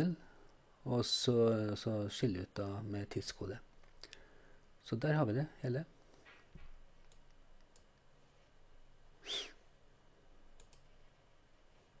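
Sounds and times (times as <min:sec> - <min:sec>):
computer mouse clicks: 0:07.0 - 0:08.0, 0:10.6 - 0:10.9.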